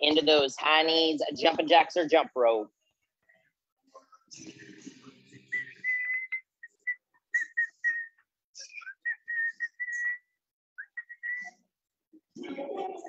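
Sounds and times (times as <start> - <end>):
person whistling: 5.5 - 11.6.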